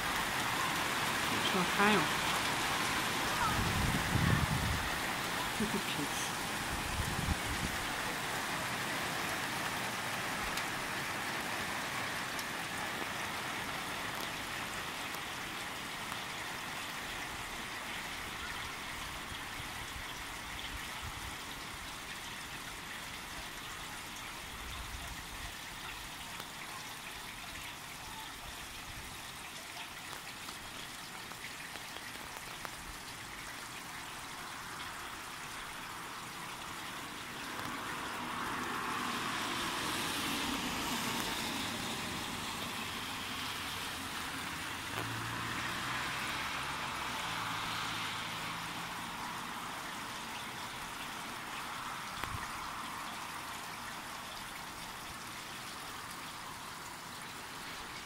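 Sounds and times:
steady rain on pavement: 0.0s - 58.0s.

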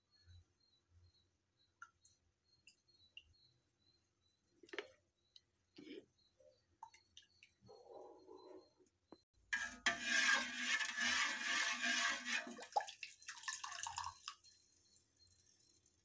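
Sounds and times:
water splashing in a metal pot: 9.6s - 16.0s.

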